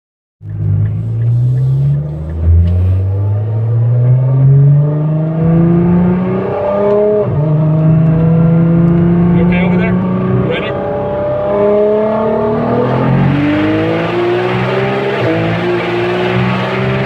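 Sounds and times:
car engine accelerating through gears: 0.4 - 17.0.

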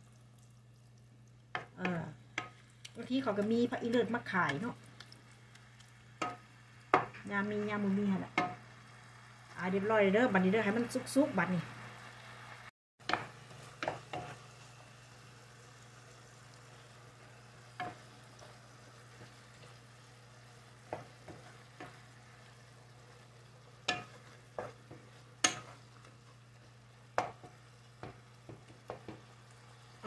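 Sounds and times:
meat sizzling in a pan: 0.0 - 30.0
wooden spatula scraping a pan: 13.0 - 14.5, 20.5 - 29.3.

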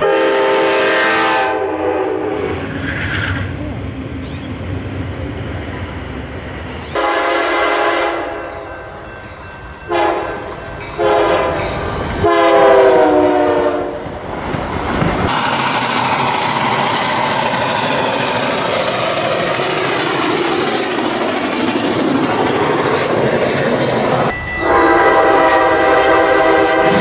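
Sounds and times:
train horn blasts: 0.0 - 2.6, 7.0 - 9.0, 9.8 - 14.0, 24.3 - 27.0
train rumble: 0.0 - 27.0
rushing noise: 14.0 - 24.7.

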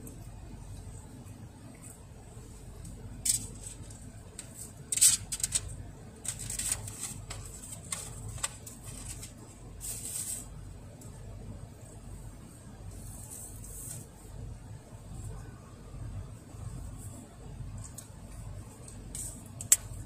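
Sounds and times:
low steady hum: 0.0 - 20.0
plastic food pack crinkling: 3.4 - 10.4.

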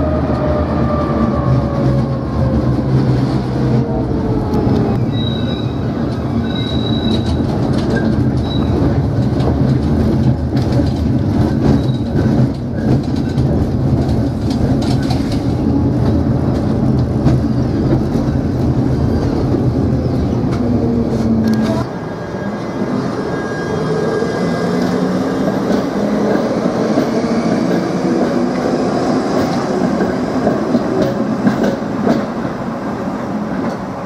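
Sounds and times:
tram rumble and motor hum: 0.0 - 22.7, 23.9 - 34.0
high wheel squeals: 5.0 - 7.4
wheels clicking on rails: 6.0 - 19.8.

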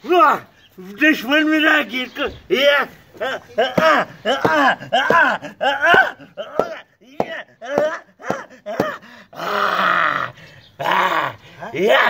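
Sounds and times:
man groaning and grunting: 3.2 - 12.0
man's hoarse cry: 3.2 - 12.0.

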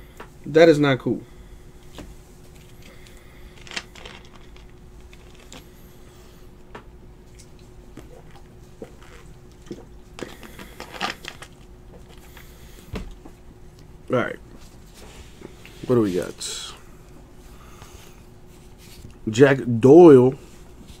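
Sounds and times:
card wrapper crinkling: 3.5 - 5.7.

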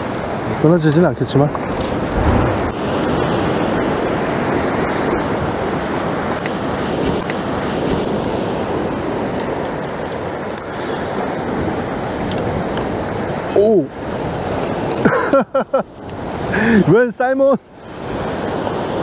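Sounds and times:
ocean waves breaking: 0.0 - 9.3.

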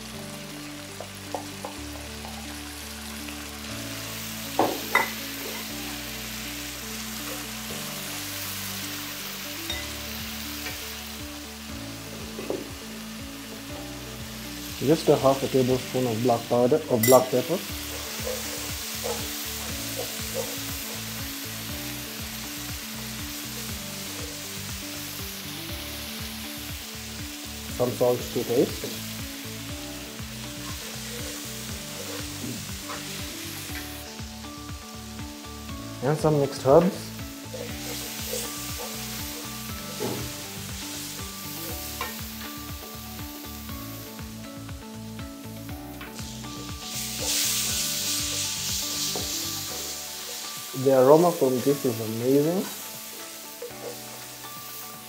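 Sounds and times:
onions sizzling in hot oil: 0.0 - 55.0
spatula scraping wok: 30.3 - 34.2, 36.8 - 42.7, 46.0 - 55.0
wooden spatula scraping wok: 30.6 - 34.2, 36.2 - 42.4.

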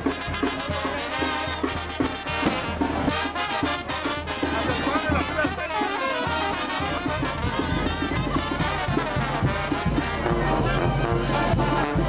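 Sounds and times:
brass band playing: 0.0 - 12.0
trumpets: 0.0 - 12.0.

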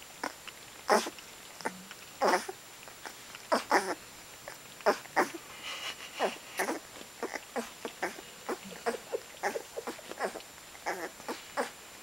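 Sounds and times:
puppies squeaking: 2.2 - 4.0, 4.8 - 5.4, 6.2 - 11.7.

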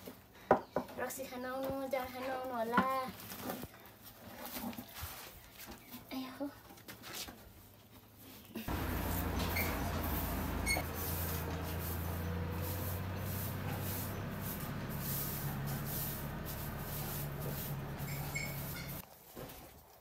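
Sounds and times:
broom sweeping grain: 8.7 - 19.0
steady low hum: 8.7 - 19.0.

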